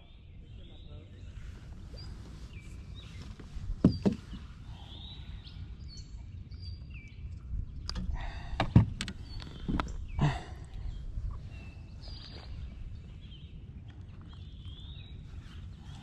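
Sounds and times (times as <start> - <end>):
knocks on kayak: 3.8 - 4.4
steady low rumble: 4.4 - 16.0
faint bird chirps: 4.6 - 7.4.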